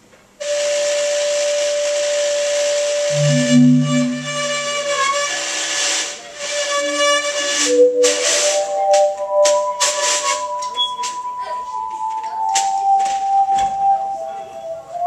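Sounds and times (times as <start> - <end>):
held melodic notes: 2.9 - 5.0, 7.7 - 15.0.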